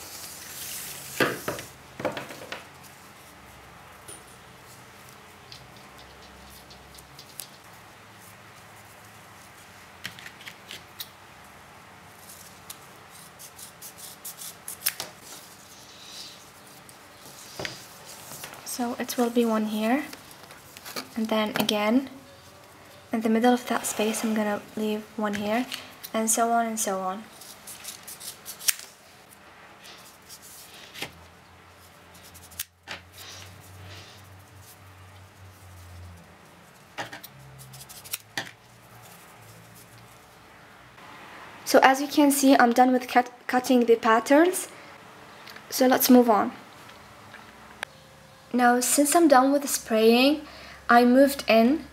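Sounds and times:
scissors snipping tape: 0:12.6 - 0:15.1, 0:37.2 - 0:38.4.

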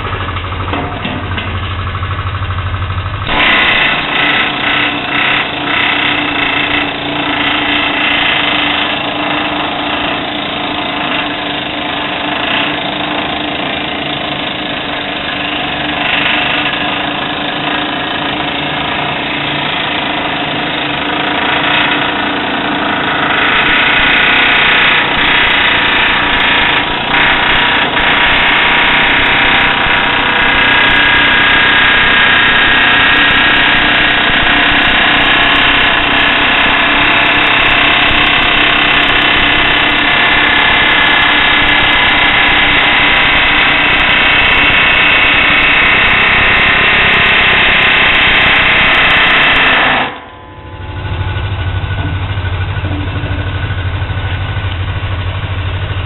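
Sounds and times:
pneumatic air hammer chatter: 0:03.2 - 0:50.3
low steady hum: 0:50.1 - 0:56.0.

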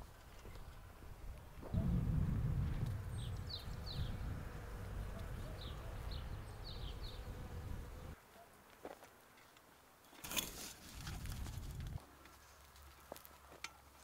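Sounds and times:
bees buzzing: 0:03.0 - 0:08.2.

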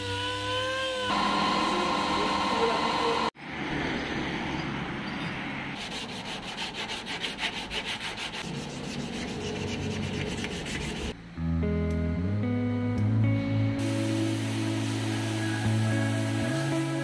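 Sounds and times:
sandpaper rasping on metal panel: 0:05.8 - 0:11.2
guitar music: 0:11.2 - 0:17.0.

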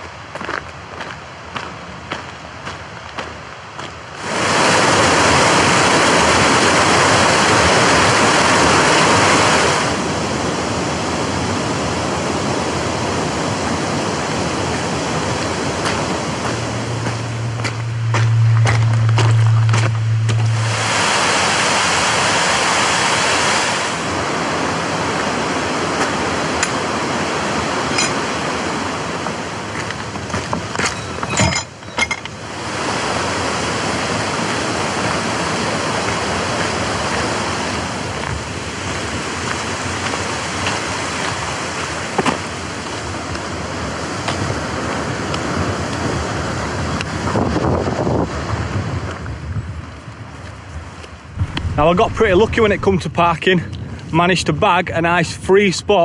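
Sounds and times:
stream rushing: 0:00.0 - 0:49.3, 0:50.5 - 0:54.9
wind on microphone: 0:04.2 - 0:54.7
low steady hum: 0:14.2 - 0:24.1, 0:51.2 - 0:54.2.

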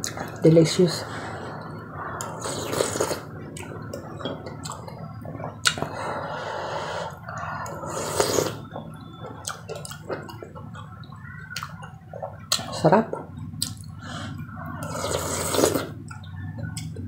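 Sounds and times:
slurping and chewing porridge: 0:01.5 - 0:08.7, 0:14.7 - 0:16.0
sharp mouth clicks: 0:13.5 - 0:13.9.

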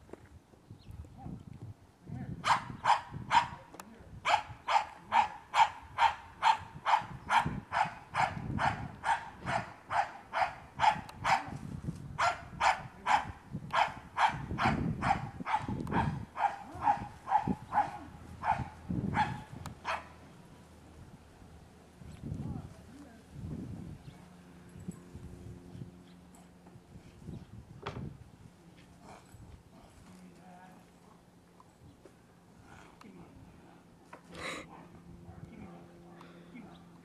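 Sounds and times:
dog barking sharply: 0:04.3 - 0:11.5.

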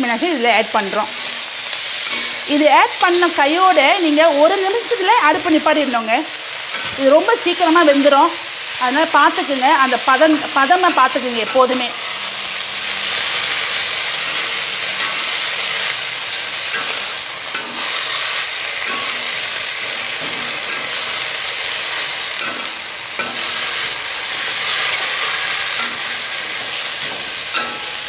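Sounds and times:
vegetables sizzling in oil: 0:00.0 - 0:28.0.

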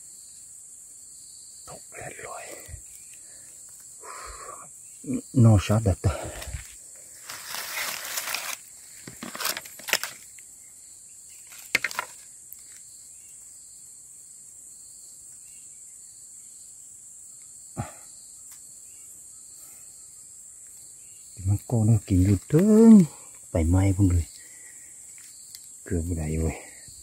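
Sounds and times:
night insects chorus: 0:00.0 - 0:27.0
leaves and twigs crunching underfoot: 0:06.1 - 0:10.5, 0:11.3 - 0:13.0
wood cracking: 0:06.3 - 0:10.3, 0:11.4 - 0:12.8.

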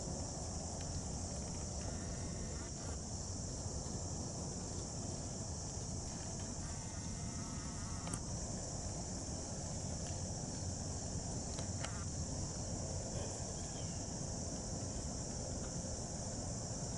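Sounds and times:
insects chorus: 0:00.0 - 0:16.9.

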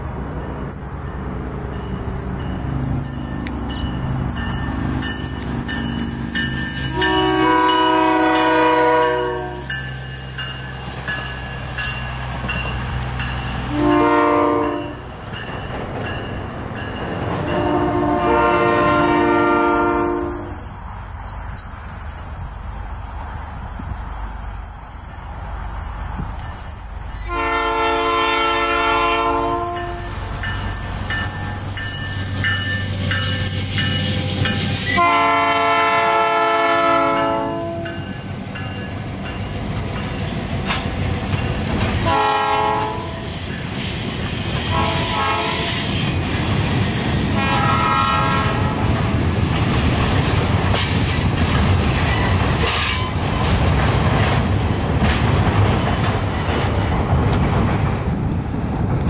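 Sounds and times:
train air horn blasts: 0:06.5 - 0:09.9, 0:13.7 - 0:15.0, 0:17.4 - 0:20.6, 0:27.1 - 0:30.3, 0:34.8 - 0:38.1, 0:42.0 - 0:43.5, 0:44.6 - 0:46.1, 0:47.0 - 0:48.9
wheels clacking over rail joints: 0:37.8 - 0:42.2, 0:48.8 - 0:58.2.

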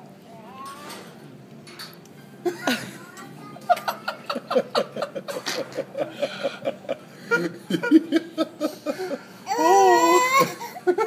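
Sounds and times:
people laughing: 0:02.4 - 0:03.0, 0:03.6 - 0:09.7, 0:10.3 - 0:11.0
baby wailing: 0:09.5 - 0:10.7.

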